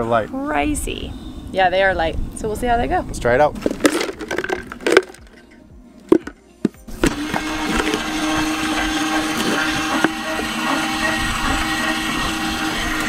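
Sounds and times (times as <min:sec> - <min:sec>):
electric jack motor whine: 0:06.9 - 0:13.0.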